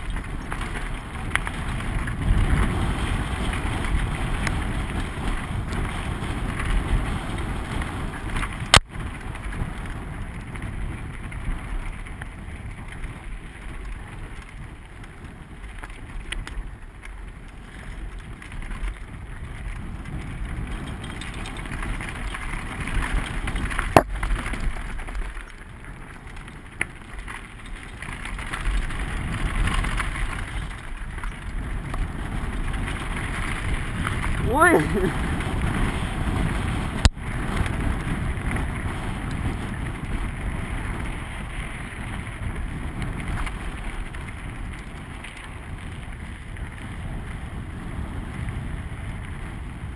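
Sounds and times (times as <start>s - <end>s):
bike tyres and frame rattling: 0.0s - 49.9s
wind noise on camera: 0.0s - 49.9s.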